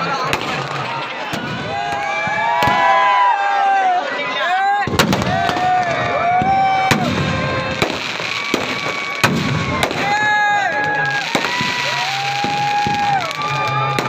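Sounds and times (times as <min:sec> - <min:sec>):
firework whistling tones: 0:05.0 - 0:14.0.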